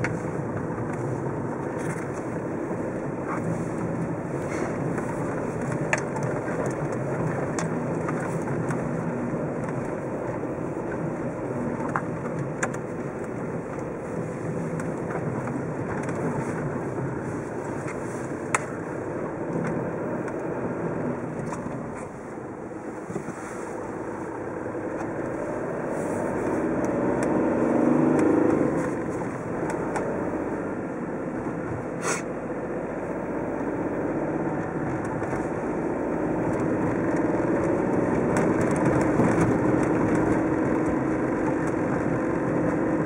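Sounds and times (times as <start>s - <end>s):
car engine and tyres rumbling: 0.0s - 43.0s.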